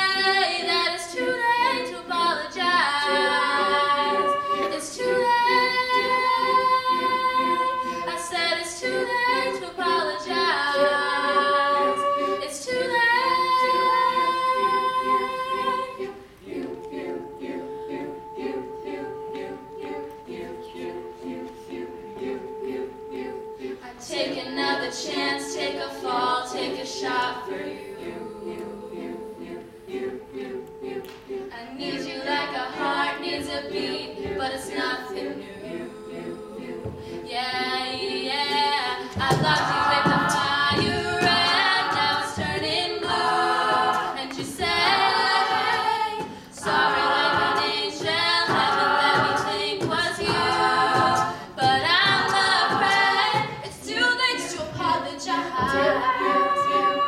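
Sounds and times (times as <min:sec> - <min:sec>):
a cappella group singing: 0:00.0 - 0:57.0
vocal percussion beat: 0:36.6 - 0:57.0.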